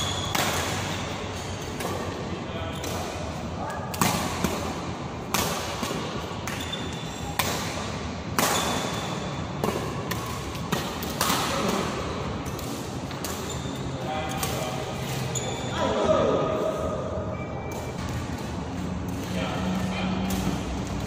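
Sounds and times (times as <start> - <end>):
rackets striking shuttlecock: 0.0 - 13.7, 20.2 - 21.0.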